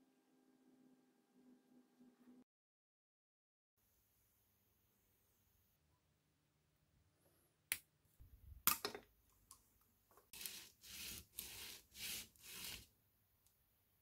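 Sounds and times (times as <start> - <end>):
rubbing on sandpaper: 10.3 - 12.9.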